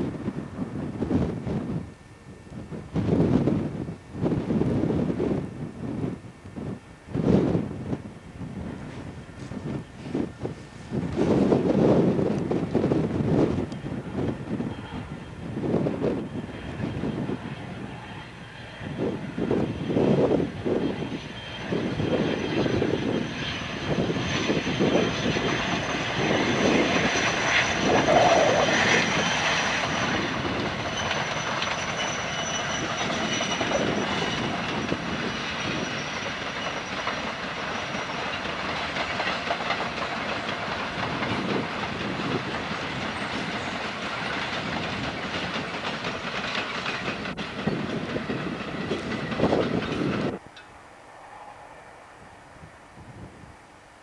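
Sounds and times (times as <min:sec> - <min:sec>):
train rolling past: 0:00.0 - 0:54.0
wagon wheels clickety-clack: 0:36.0 - 0:50.3.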